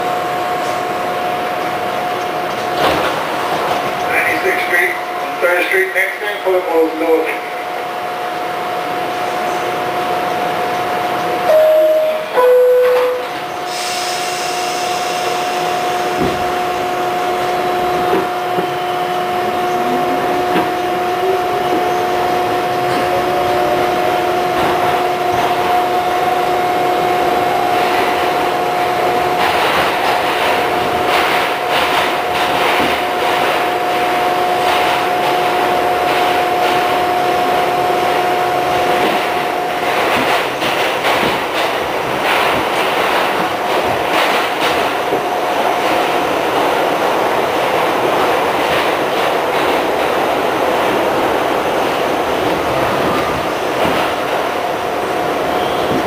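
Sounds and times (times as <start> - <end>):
two-tone door chime: 11.5 - 13.4
wheels clattering over rail joints: 27.7 - 46.7.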